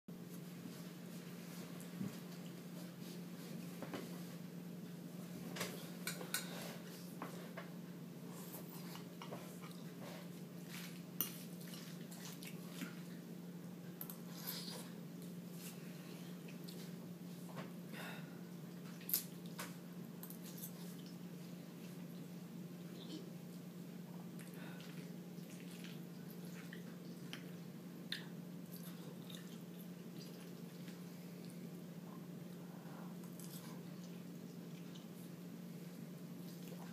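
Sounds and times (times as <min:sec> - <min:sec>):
faint steady hum: 0:00.1 - 0:36.9
wet chewing: 0:24.4 - 0:31.6.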